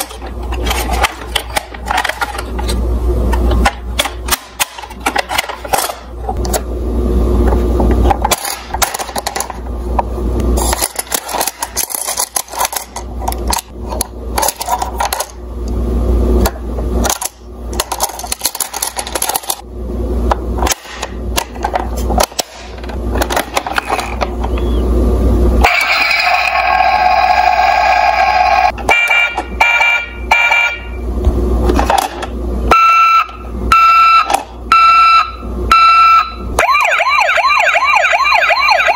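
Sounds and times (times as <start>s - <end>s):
plastic toy clicks and rattles: 10.6s - 13.7s, 17.0s - 19.6s.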